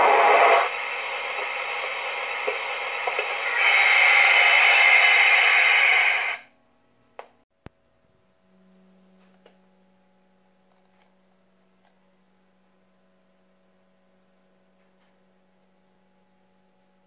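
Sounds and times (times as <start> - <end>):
loud steam hiss: 0.0 - 6.5
faint low hum: 6.5 - 17.0.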